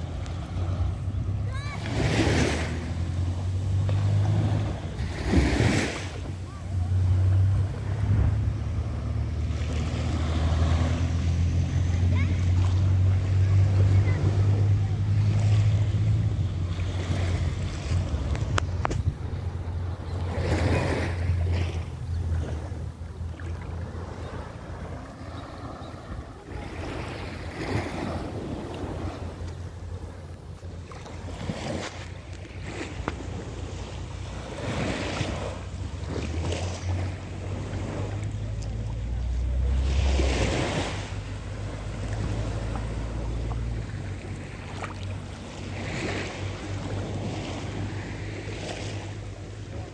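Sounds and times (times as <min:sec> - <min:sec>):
small waves washing: 0:00.0 - 0:49.9
wind rumbling on microphone: 0:00.0 - 0:49.9
wind buffeting microphone: 0:15.7 - 0:30.6.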